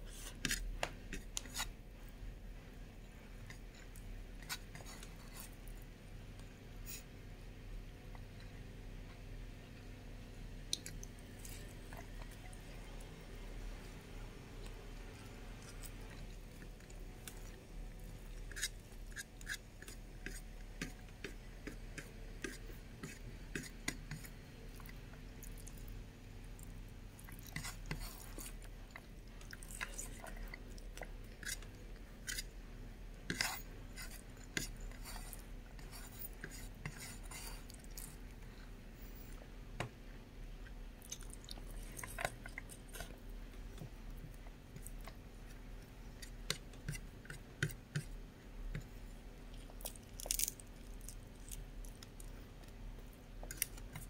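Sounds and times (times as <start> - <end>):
chewing and wet mouth clicks: 10.7 - 11.2, 41.0 - 43.1.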